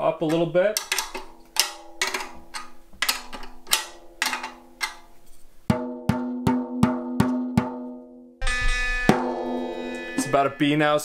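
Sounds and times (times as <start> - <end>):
drumstick tapping tom drum: 0.3 - 5.1, 5.7 - 8.0.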